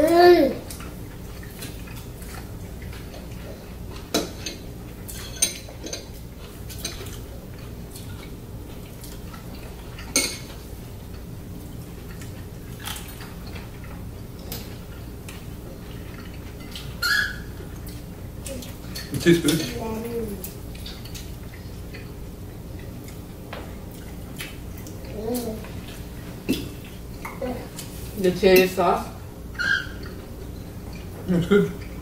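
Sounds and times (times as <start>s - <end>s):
low room hum: 0.0s - 32.0s
forks clinking on plates: 4.1s - 6.1s, 9.9s - 10.5s, 18.9s - 19.8s.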